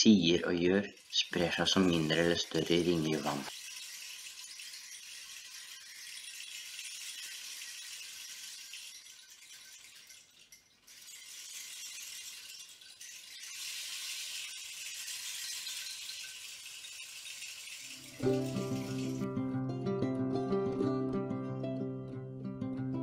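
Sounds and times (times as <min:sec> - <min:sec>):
rainstick pellets rushing: 0:00.0 - 0:19.4
plucked music: 0:17.9 - 0:23.0.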